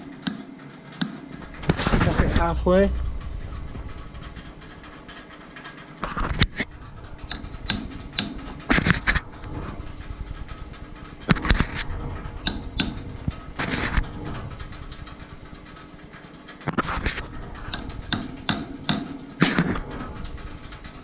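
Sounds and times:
hammer tapping steel pin: 17.7s - 19.2s.

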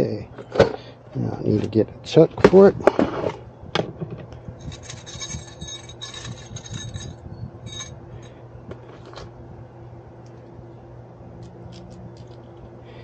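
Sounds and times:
steady low hum: 0.0s - 13.0s
metal hardware clinking: 4.6s - 8.0s.

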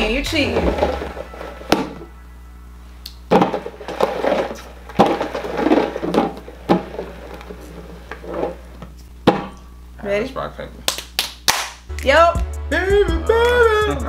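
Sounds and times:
bowls scraping across a table: 0.4s - 2.2s, 3.3s - 8.9s.

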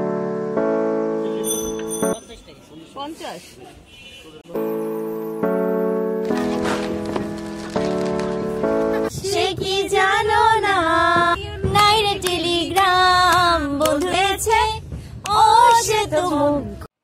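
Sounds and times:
held chords: 0.0s - 2.5s
woman singing: 9.2s - 16.9s.

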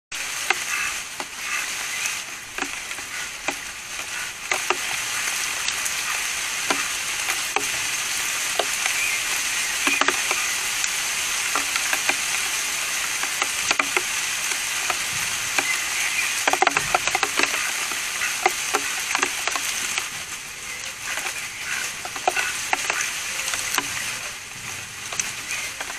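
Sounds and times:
steady hiss: 0.1s - 25.9s.

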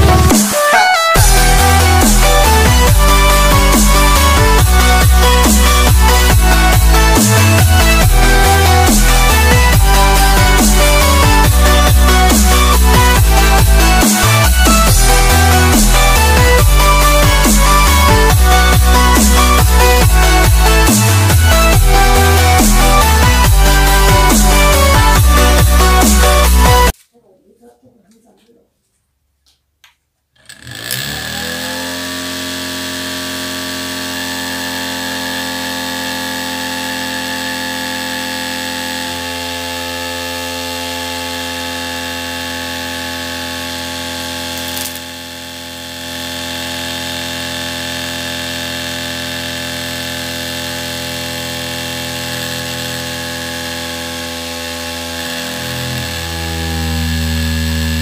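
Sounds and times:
small motor fan whining: 30.4s - 58.0s.

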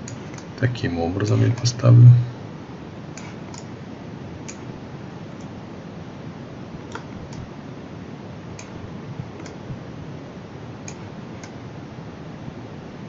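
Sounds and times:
steady background hiss: 0.0s - 13.0s
computer mouse clicking: 3.2s - 3.7s, 6.9s - 7.5s, 9.4s - 9.6s.

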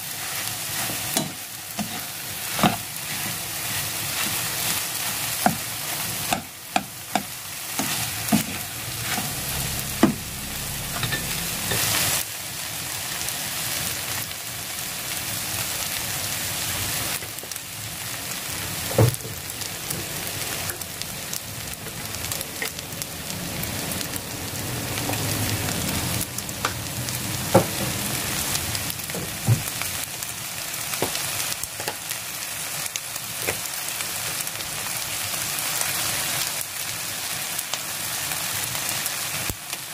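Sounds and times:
stir-fry sizzling in a frying pan: 0.0s - 39.9s
spatula scraping a pan: 0.7s - 5.6s, 6.3s - 10.2s.

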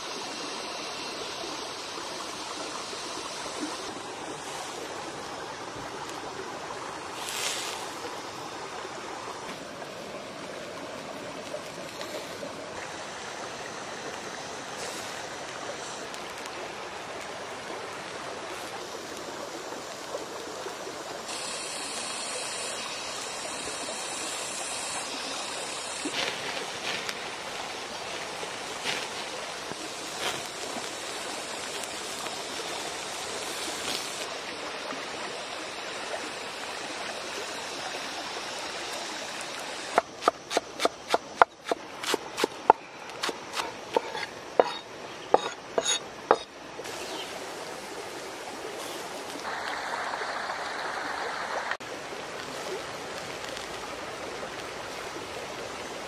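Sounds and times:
oysters sizzling over fire: 7.0s - 9.4s, 11.2s - 34.7s, 35.5s - 50.4s, 51.2s - 56.0s
sharp crackling pops: 26.0s - 34.3s.

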